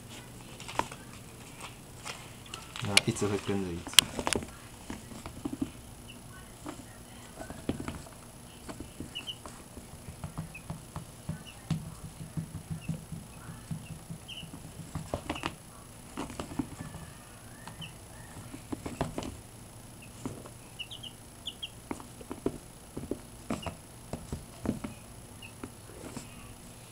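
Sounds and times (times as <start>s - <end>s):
chicks peeping: 5.1s - 22.5s, 23.5s - 26.5s.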